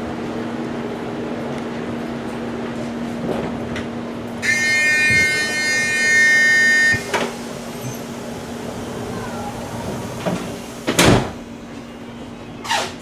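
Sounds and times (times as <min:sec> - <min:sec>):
train interior hum: 0:00.0 - 0:13.0
electronic door warning tone: 0:04.4 - 0:07.3.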